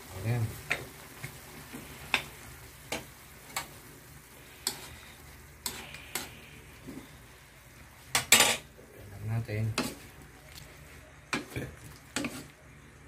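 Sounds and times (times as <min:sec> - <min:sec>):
vegetables sizzling in a wok: 0:00.0 - 0:13.0
utensil scraping metal pan: 0:12.1 - 0:12.5.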